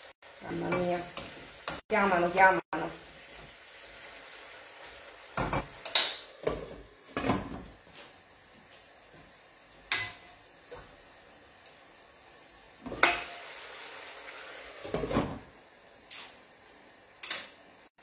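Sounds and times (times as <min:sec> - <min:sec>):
metal pans knocking and scraping: 0:05.4 - 0:07.7.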